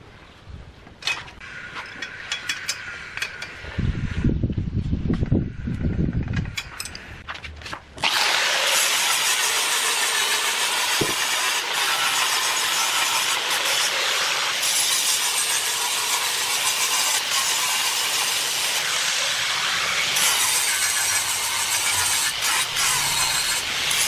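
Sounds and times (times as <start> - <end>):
angle grinder grinding metal: 8.0 - 24.0.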